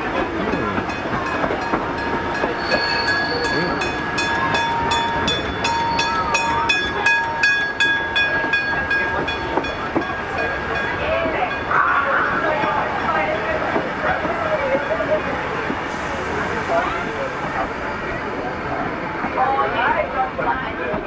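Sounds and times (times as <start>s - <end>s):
train carriage running noise: 0.0s - 21.0s.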